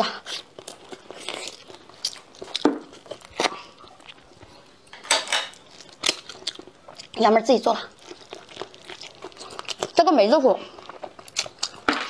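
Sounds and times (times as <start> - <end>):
wet chewing mouth noises: 0.0 - 4.7.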